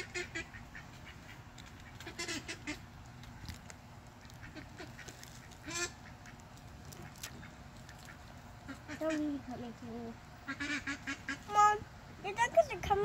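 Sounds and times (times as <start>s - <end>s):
ducks quacking: 0.0s - 3.5s, 4.1s - 9.5s, 10.4s - 11.7s.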